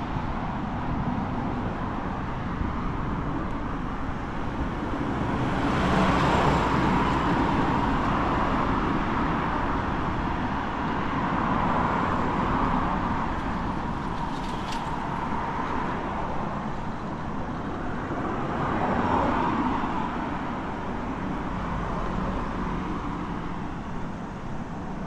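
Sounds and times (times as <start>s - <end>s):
road traffic passing: 0.0s - 25.0s.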